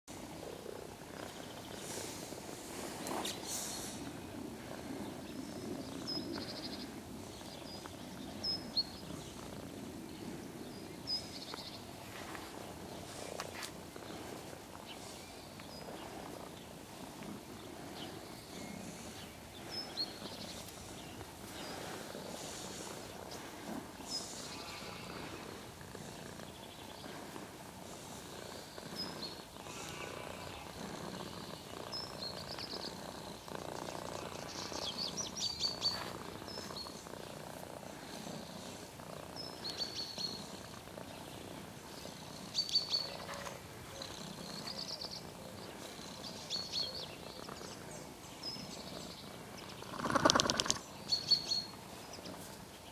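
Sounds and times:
cat purring: 0:00.2 - 0:52.6
bird chirps: 0:33.9 - 0:37.0, 0:42.6 - 0:43.4, 0:48.4 - 0:52.4.

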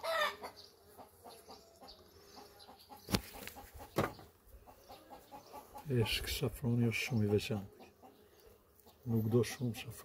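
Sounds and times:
chickens clucking: 0:00.0 - 0:10.0
sharp knocks: 0:04.0 - 0:04.3.

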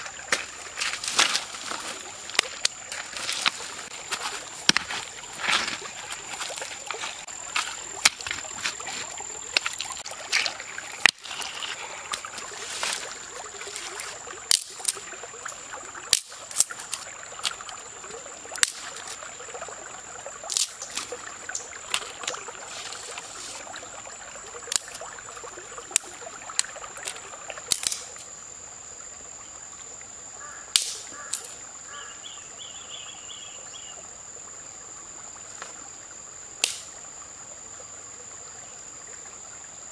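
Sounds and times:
stones knocking on pebbles: 0:00.0 - 0:15.0
shallow stream rushing: 0:00.0 - 0:28.4
high insect whine: 0:00.0 - 0:39.9
dry sticks snapping: 0:00.3 - 0:08.8, 0:09.5 - 0:15.0, 0:16.1 - 0:17.8, 0:18.6 - 0:19.2, 0:20.5 - 0:23.2, 0:24.7 - 0:25.1, 0:25.9 - 0:28.2, 0:30.7 - 0:31.5, 0:36.6 - 0:36.9.

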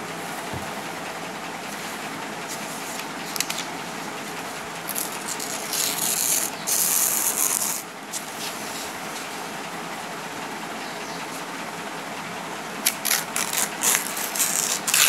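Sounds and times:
paper tearing: 0:04.9 - 0:07.8, 0:12.8 - 0:15.0.

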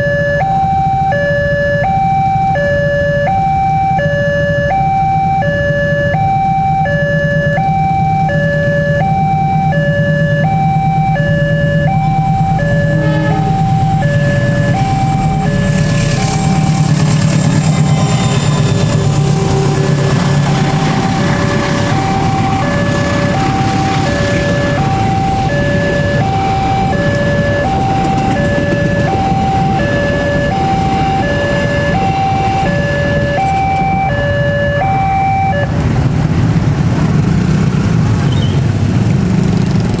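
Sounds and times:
two-tone crossing alarm: 0:00.0 - 0:35.9
passenger train rumbling past: 0:09.7 - 0:40.0.

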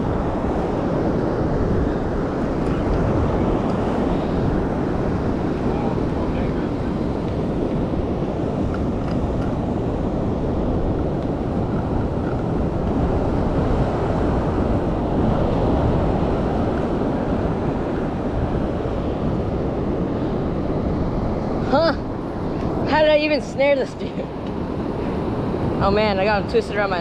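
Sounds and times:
ocean surf: 0:00.0 - 0:27.0
wind rumbling on microphone: 0:00.0 - 0:27.0.

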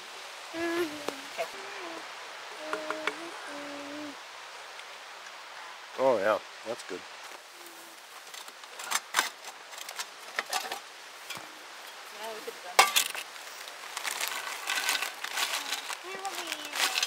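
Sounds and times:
chip bag crinkling: 0:13.0 - 0:17.0.

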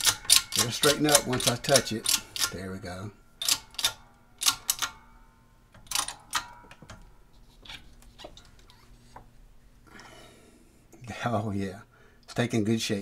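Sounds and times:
hydraulic press metallic clicks: 0:00.0 - 0:02.6, 0:03.4 - 0:05.0
faint steady hum: 0:00.0 - 0:13.0.

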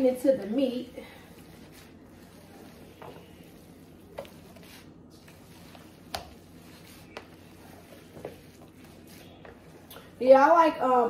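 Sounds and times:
hands kneading raw meat: 0:00.4 - 0:10.5.

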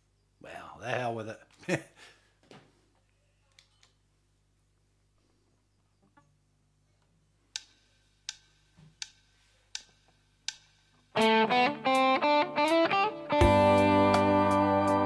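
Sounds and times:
sharp count-in clicks: 0:07.6 - 0:09.2, 0:09.8 - 0:10.7.

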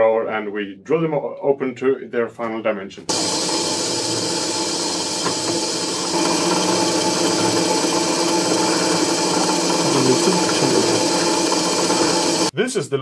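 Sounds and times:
drill press motor hum: 0:03.1 - 0:12.5.

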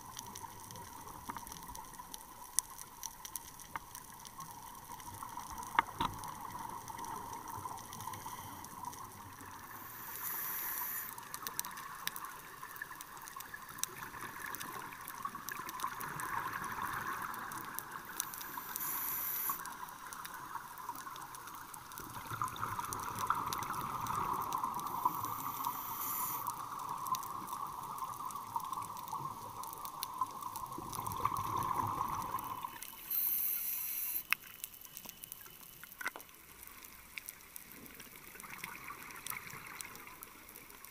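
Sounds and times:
faint clicks and crackles: 0:00.0 - 0:40.9
regulator inhalation hiss: 0:09.7 - 0:11.3, 0:18.2 - 0:19.8, 0:24.8 - 0:26.6, 0:32.7 - 0:34.4
bubbling exhaled air underwater: 0:21.9 - 0:34.2.

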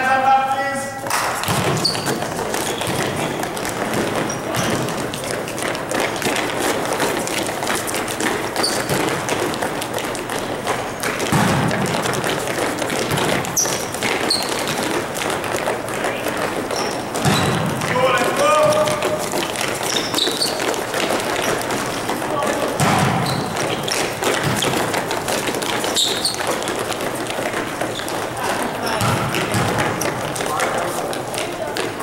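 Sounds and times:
footsteps on hard court: 0:00.0 - 0:32.0
sneaker squeaks: 0:00.8 - 0:32.0
volleyballs thudding: 0:01.0 - 0:32.0.

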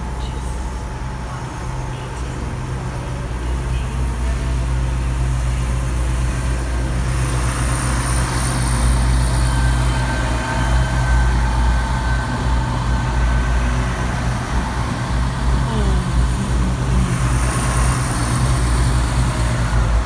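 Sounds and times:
diesel train engines droning: 0:00.0 - 0:20.0
thin whine: 0:07.0 - 0:19.6.

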